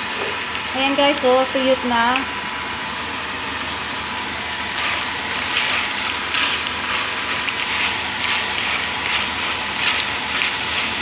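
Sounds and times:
meat sizzling with crackles and pops: 4.7 - 11.0.

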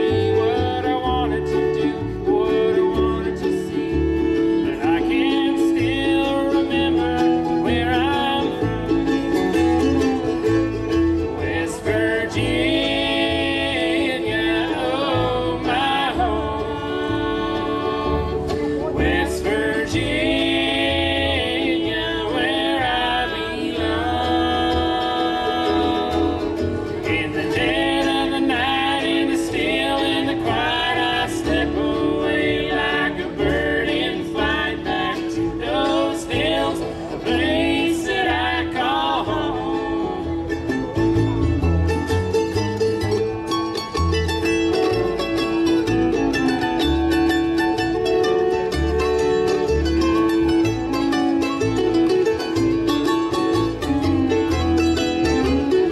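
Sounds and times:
voices singing in harmony: 0.0 - 9.4, 11.2 - 40.9
acoustic guitar: 0.0 - 55.9
fiddle: 0.0 - 55.9
mandolin: 0.0 - 55.9
upright bass: 0.0 - 55.9.

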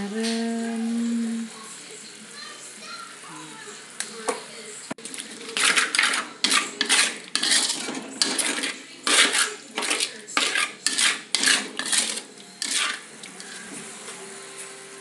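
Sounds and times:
spatula scraping a metal wok: 5.0 - 13.8.

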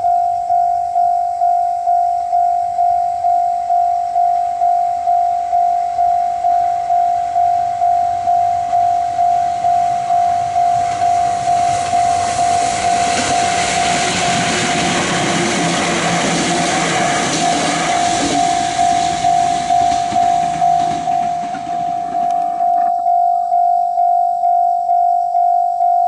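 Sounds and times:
level-crossing alarm ringing: 0.0 - 26.0
train passing rumble and rattle: 7.7 - 22.8.

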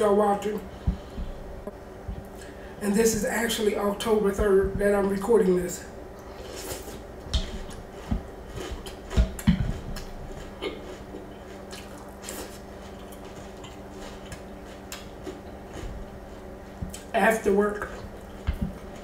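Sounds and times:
wet chewing: 6.2 - 17.1.

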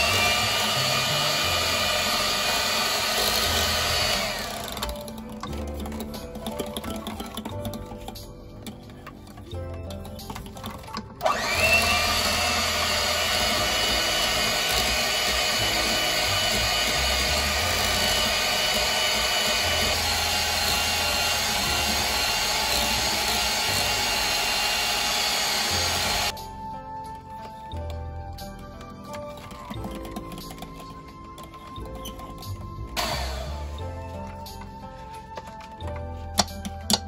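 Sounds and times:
electric hand mixer whining: 0.0 - 8.1, 10.3 - 26.4, 29.3 - 34.6.

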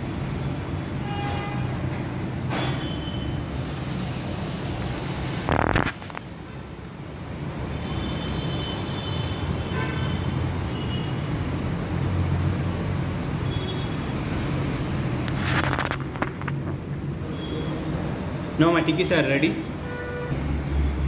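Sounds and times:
noisy burst: 3.5 - 6.4.

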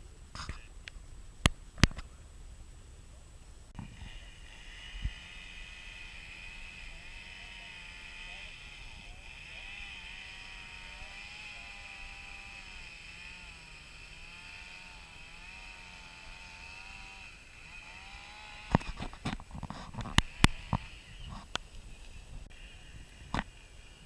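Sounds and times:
distant motor droning: 3.8 - 24.0
sharp knocks and rustles: 18.6 - 21.6.

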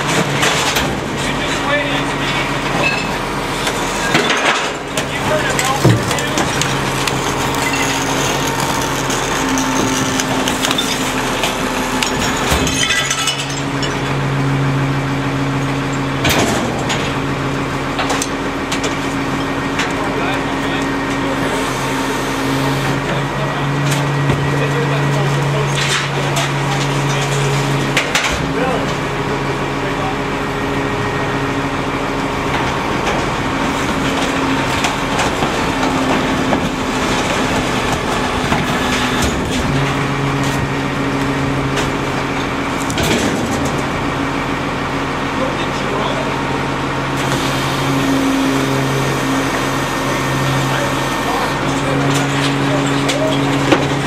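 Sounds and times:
trash knocking and clattering: 0.0 - 14.1, 23.8 - 29.3, 32.3 - 40.9, 41.5 - 44.3, 51.6 - 54.0
garbage truck idling: 0.0 - 54.0.

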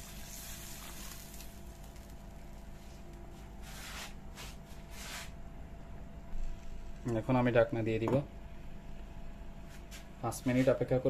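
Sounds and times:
water pouring into pot: 0.0 - 2.3
faint steady hum: 0.0 - 11.0.

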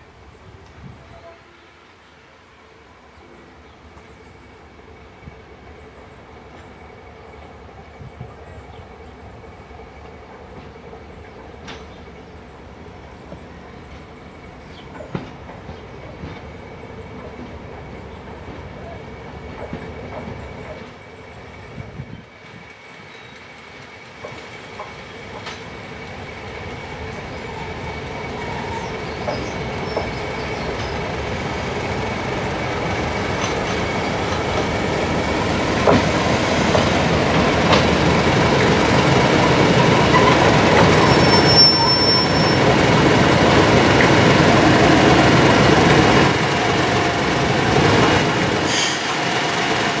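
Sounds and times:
diesel locomotive engine: 0.0 - 50.0
high wheel squeal: 39.9 - 42.9.

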